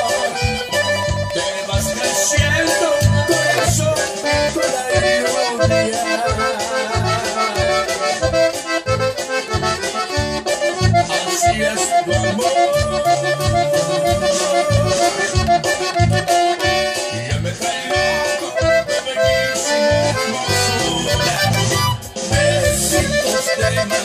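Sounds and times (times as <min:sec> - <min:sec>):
button accordion melody: 0:00.0 - 0:24.0.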